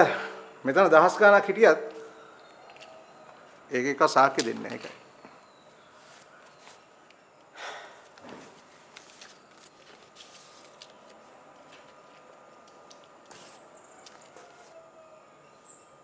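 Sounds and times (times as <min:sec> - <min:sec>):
paper rustling: 0:08.3 - 0:14.8.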